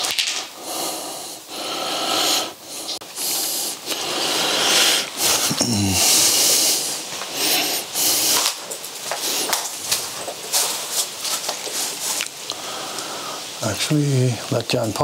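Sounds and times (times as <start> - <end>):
footsteps crunching on dry leaves: 8.0 - 12.5.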